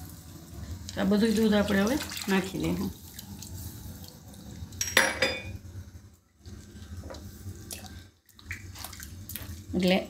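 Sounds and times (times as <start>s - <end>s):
sauce sloshing while stirred: 6.3s - 10.0s.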